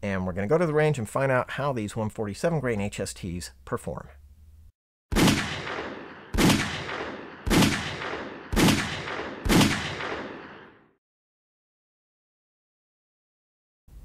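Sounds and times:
pistol shots with echo: 5.1s - 10.9s.

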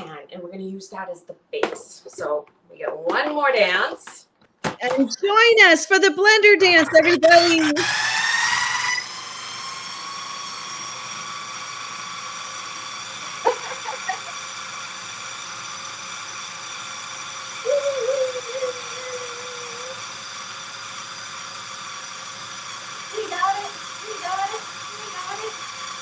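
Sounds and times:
food processor motor whirring: 6.5s - 26.0s
wavering hoot-like voice: 17.6s - 20.0s.

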